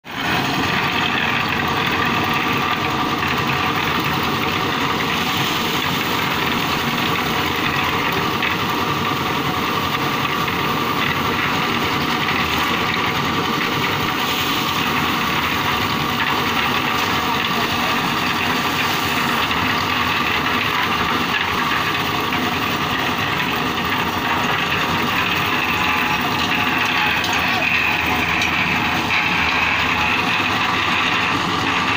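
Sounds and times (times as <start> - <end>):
concrete mixer engine running: 0.0 - 31.9
dried peas tumbling in drum: 3.3 - 31.9.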